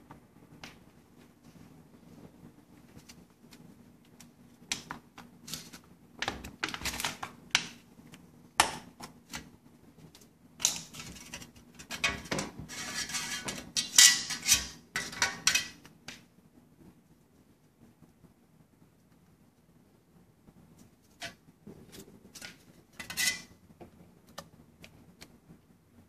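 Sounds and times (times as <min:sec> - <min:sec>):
metal cans clinking and scraping: 0:22.4 - 0:23.5.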